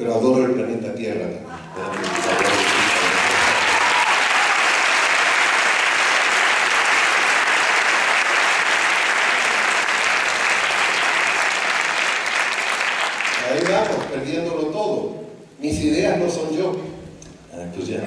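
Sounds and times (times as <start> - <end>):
audience applauding: 1.6 - 14.2.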